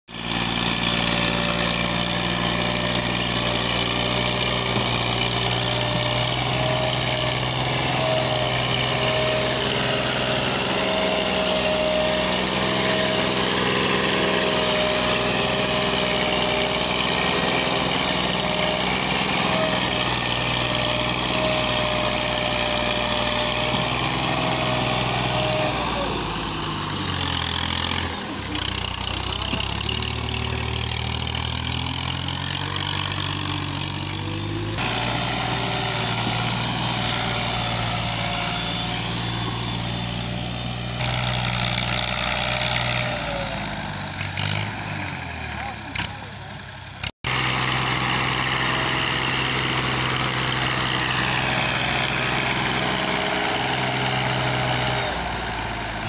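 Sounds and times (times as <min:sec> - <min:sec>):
tractor diesel engine under load: 0:00.0 - 0:56.0.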